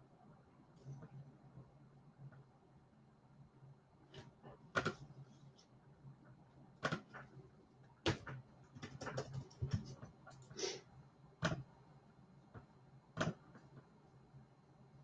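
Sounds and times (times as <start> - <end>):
faint steady hum: 0.0 - 15.0
computer keyboard typing: 8.1 - 10.5.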